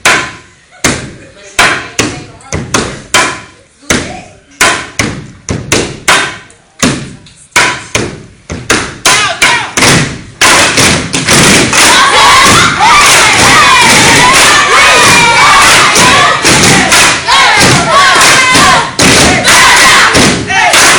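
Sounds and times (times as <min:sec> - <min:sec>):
rhythmic stomping on hard floor: 0:00.0 - 0:20.9
crowd cheering and shouting: 0:11.7 - 0:20.9.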